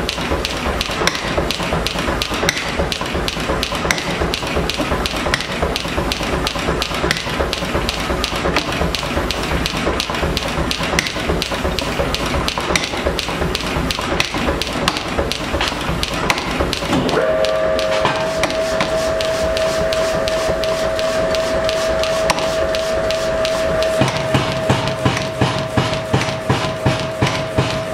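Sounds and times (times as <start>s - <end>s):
hammer striking hot metal on anvil: 1.0s - 1.4s, 2.3s - 2.9s, 3.9s - 4.4s, 11.0s - 11.5s, 14.2s - 27.9s
steady whine: 1.0s - 27.9s.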